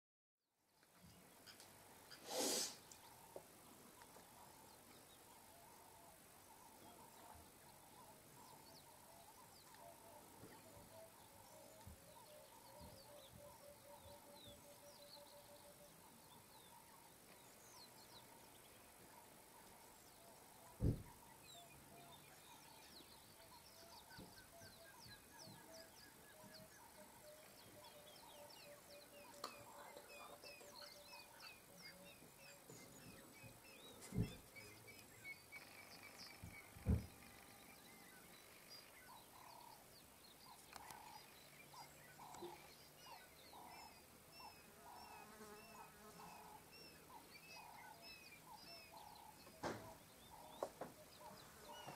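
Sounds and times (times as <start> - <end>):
wild birds calling: 1.1 - 51.9
soft thump: 20.8 - 21.2, 36.8 - 37.1.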